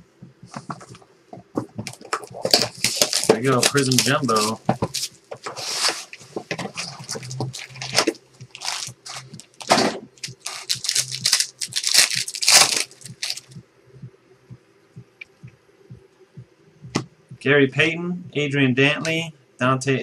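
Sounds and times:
cards rustling: 1.6s - 13.6s
wrapper tearing and crinkling: 2.2s - 6.1s, 6.8s - 13.5s
faint ticking: 12.9s - 17.6s.

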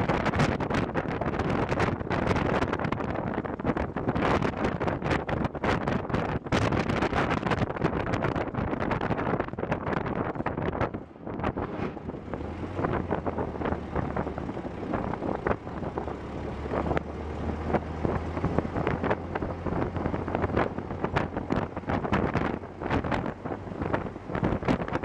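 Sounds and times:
car engine hum: 0.0s - 25.0s
wind on microphone: 0.0s - 25.0s.

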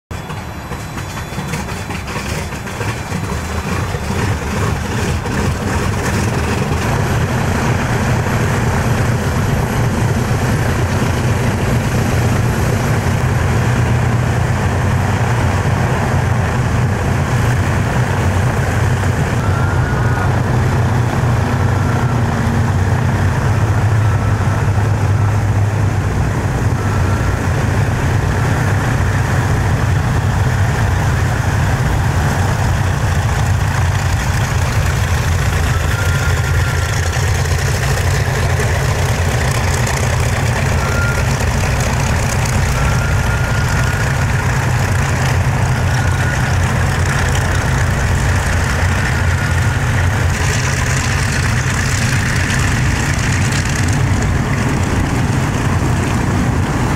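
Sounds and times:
propeller aircraft engines droning: 0.1s - 56.9s.

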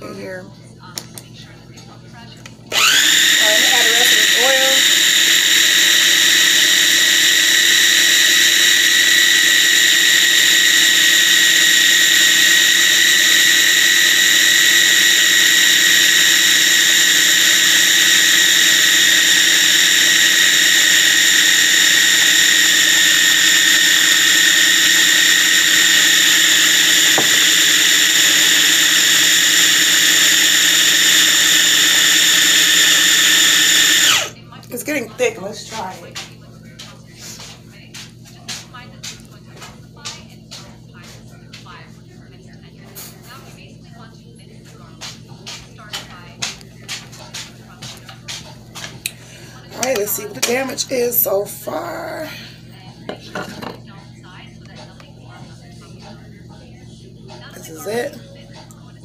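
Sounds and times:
food processor motor whining: 2.7s - 34.4s.

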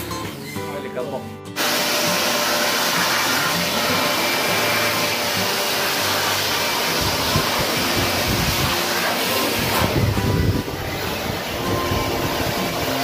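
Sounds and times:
electric blower running: 1.6s - 13.0s.

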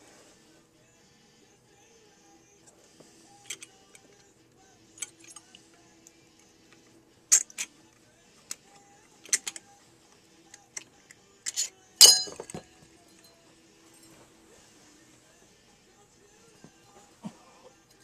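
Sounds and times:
metal rings clicking and clinking: 11.5s - 13.3s.

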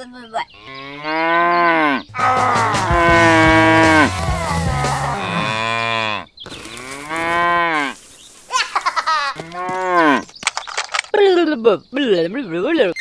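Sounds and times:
livestock calling: 0.0s - 10.3s.

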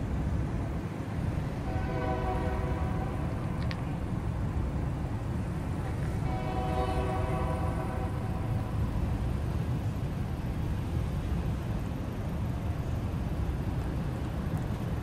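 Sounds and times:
steady low rumble: 0.0s - 15.0s
train horn blasts: 1.6s - 3.6s, 6.2s - 8.8s.

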